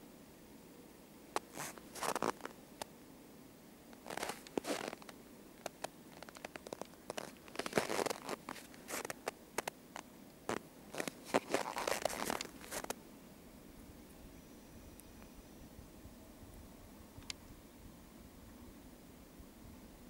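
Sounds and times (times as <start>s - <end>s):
footsteps crunching in snow: 1.4s - 2.6s, 4.0s - 9.7s, 10.5s - 13.0s.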